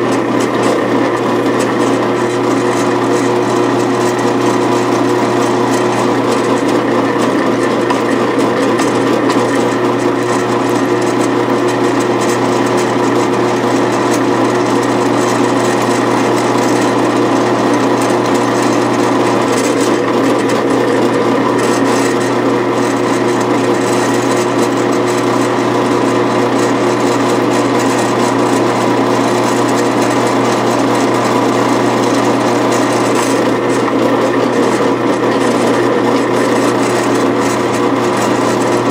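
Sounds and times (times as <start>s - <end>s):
drill bit scraping metal: 0.0s - 38.9s
drill press motor hum: 0.0s - 38.9s.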